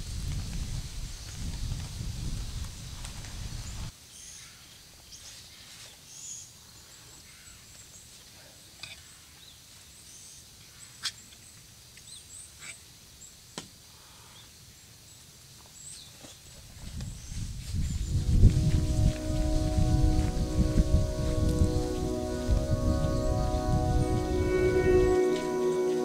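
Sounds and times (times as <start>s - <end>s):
light rain hiss: 9.7s - 26.0s
low rumble: 18.1s - 25.5s.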